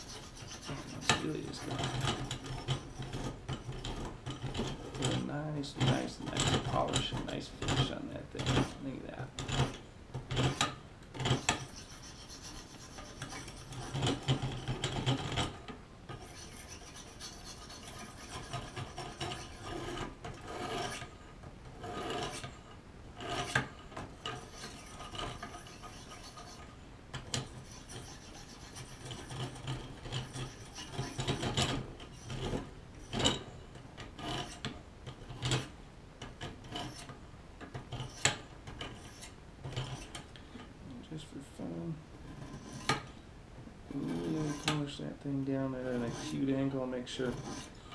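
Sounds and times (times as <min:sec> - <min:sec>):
sharpening stone scraping blade: 0:00.0 - 0:05.3, 0:10.4 - 0:15.5, 0:16.1 - 0:21.1, 0:23.2 - 0:26.7, 0:27.4 - 0:33.4, 0:36.7 - 0:37.1.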